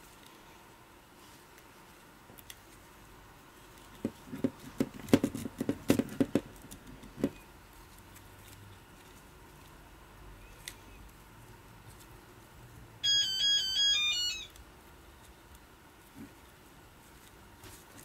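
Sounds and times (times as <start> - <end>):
webbing and plastic rustling: 13.6 - 18.0.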